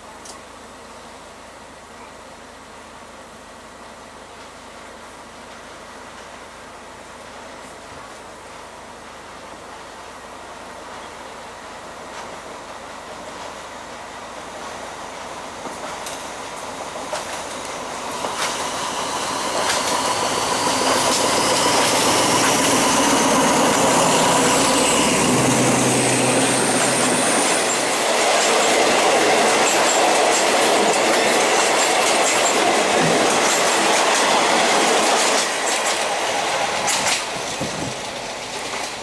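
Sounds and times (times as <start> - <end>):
diesel locomotive engine hum: 0.0 - 39.0
train wheels clickety-clack: 12.1 - 13.7, 14.4 - 39.0
high wheel squeal: 18.5 - 30.5.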